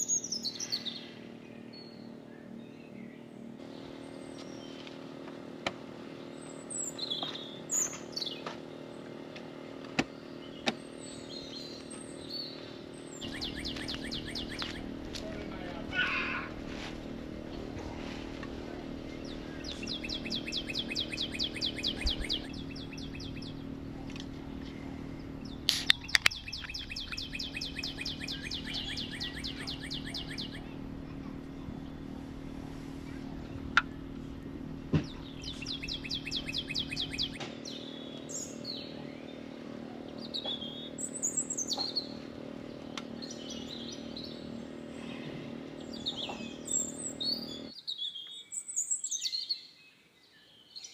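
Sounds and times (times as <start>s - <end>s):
low hum: 0.0s - 47.7s
birds chirping: 0.0s - 50.9s
bird trilling: 11.0s - 16.6s, 19.1s - 47.7s
sharp clicks: 25.6s - 30.5s.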